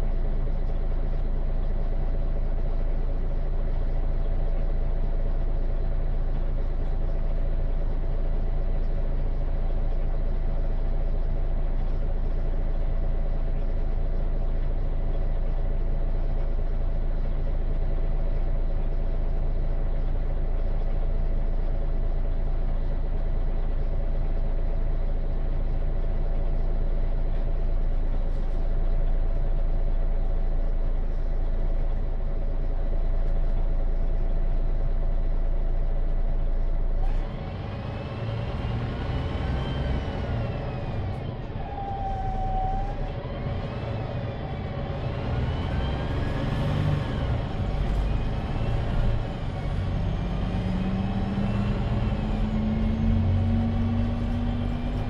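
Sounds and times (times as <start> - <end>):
diesel bus engine idling: 0.0 - 55.0
rising engine whine: 37.0 - 55.0.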